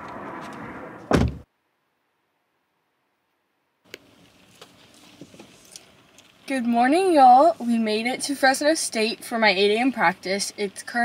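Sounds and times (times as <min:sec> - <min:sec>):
outdoor background noise: 0:00.0 - 0:11.0
car door shutting: 0:00.4 - 0:01.5.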